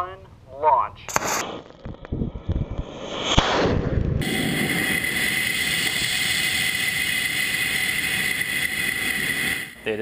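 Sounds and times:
sharp crack: 1.1s - 8.7s
rocket motor roaring: 1.1s - 10.0s
rushing air with high whine: 1.1s - 10.0s.

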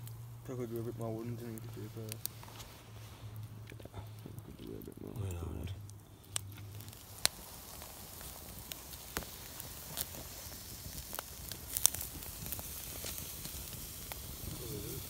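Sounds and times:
campfire crackling: 0.0s - 15.0s
low steady hiss: 0.0s - 15.0s
sharp fire pops: 3.3s - 15.0s.

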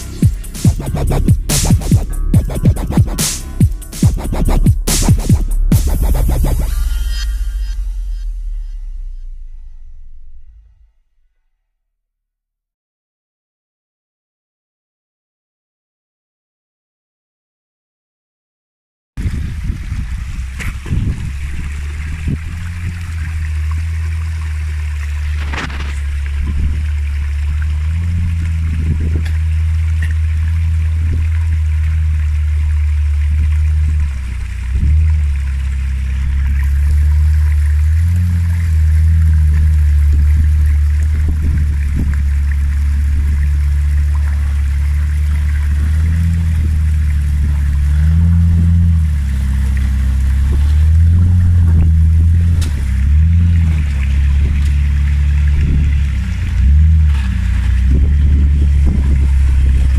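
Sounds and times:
car engine running at low revs: 0.0s - 11.0s, 19.2s - 59.9s
water rushing in stream: 19.2s - 59.9s.

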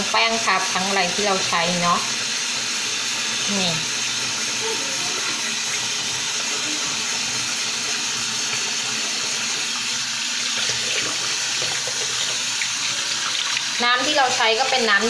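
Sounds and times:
faucet running into sink: 0.0s - 15.0s.

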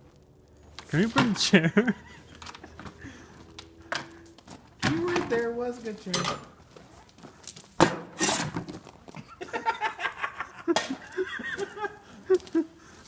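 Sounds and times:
person laughing: 1.4s - 3.3s, 9.2s - 13.0s.

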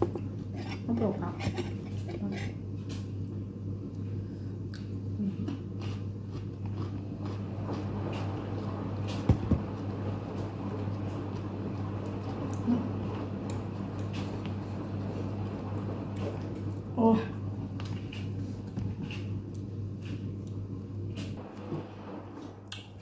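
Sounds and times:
person chewing food: 2.8s - 9.1s, 10.7s - 16.9s, 17.8s - 21.2s
low hum: 6.8s - 23.0s.

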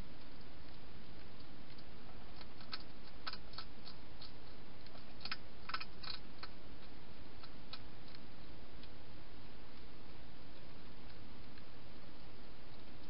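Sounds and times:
hedgehog crunching dry food: 0.1s - 9.0s.

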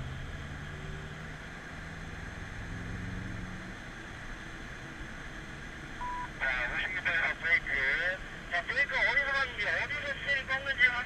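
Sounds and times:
car engine accelerating: 0.0s - 4.0s.

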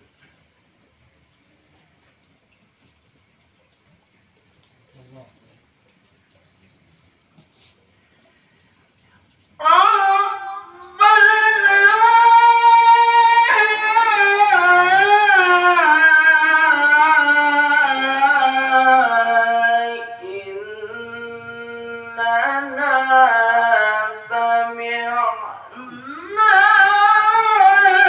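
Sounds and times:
man reciting melodically: 25.1s - 28.0s.

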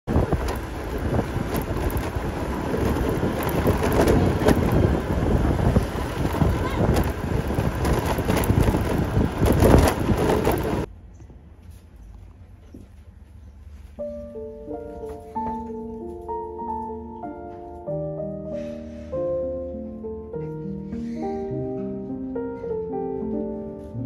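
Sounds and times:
motor scooter engine: 0.1s - 10.9s
wind buffeting on microphone: 0.1s - 10.9s.

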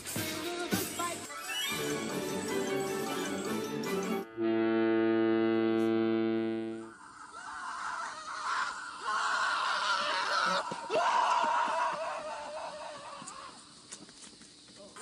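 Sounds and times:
flat held tone: 4.2s - 6.9s.

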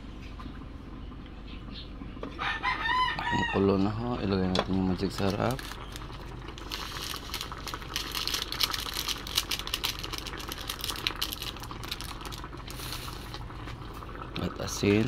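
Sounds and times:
pot low hum: 0.0s - 15.0s
broth bubbling hard: 4.8s - 15.0s.

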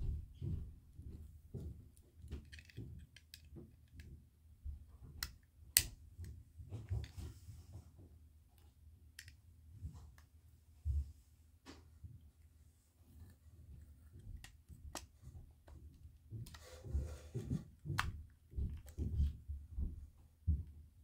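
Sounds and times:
plastic bricks clicking: 2.4s - 4.0s.

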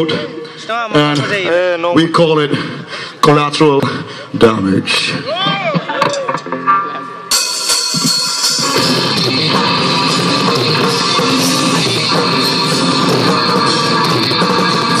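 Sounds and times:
live rock band playing: 5.7s - 15.0s.

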